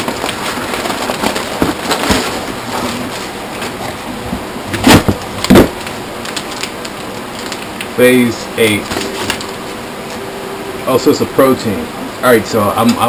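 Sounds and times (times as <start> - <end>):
packaging rustling: 0.0 - 4.0, 4.7 - 8.0, 8.6 - 10.2.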